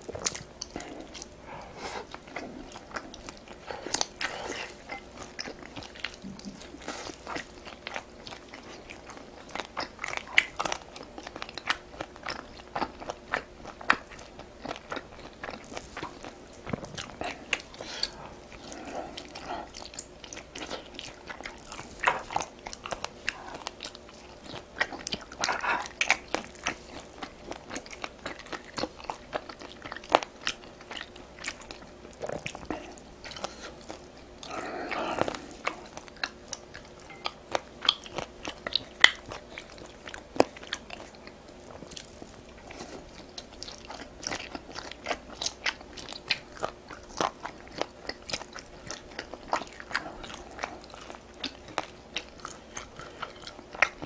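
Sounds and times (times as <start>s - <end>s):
person chewing and biting: 0.0s - 54.0s
breathy sounds: 0.6s - 5.0s, 15.7s - 19.9s, 32.2s - 36.0s.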